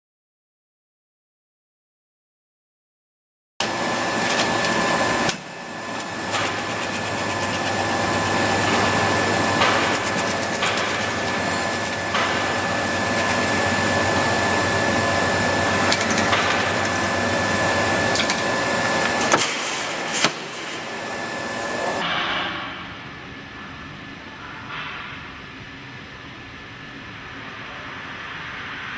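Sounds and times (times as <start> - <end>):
welding machine low hum: 3.6 - 22.0
high steady whine: 3.6 - 24.2.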